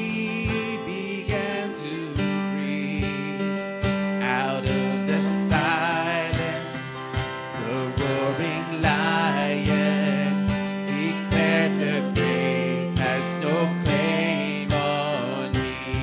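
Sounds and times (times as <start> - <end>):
acoustic guitar chords: 0.0 - 16.0
cajon beat: 0.0 - 16.0
keyboard chords: 0.0 - 16.0
person singing: 0.0 - 16.0.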